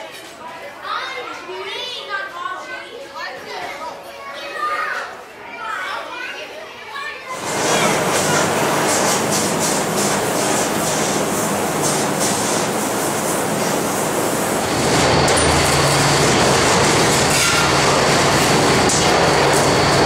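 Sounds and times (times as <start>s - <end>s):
cutting torch hissing and crackling: 7.4s - 20.0s
steady machine hum: 7.4s - 20.0s
thin high whine: 7.4s - 20.0s.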